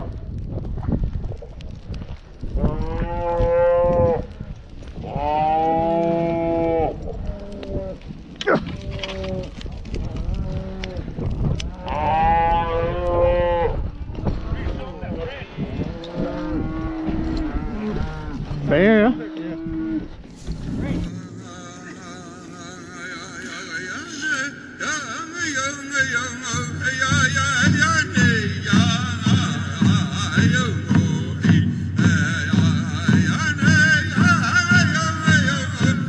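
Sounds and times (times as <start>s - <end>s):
cattle bawling: 15.9s - 20.2s.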